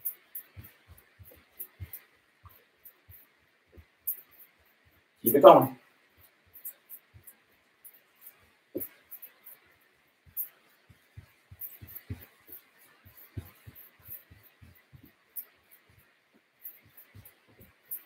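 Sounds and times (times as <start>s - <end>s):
footfalls on carpet: 6.1s - 18.0s.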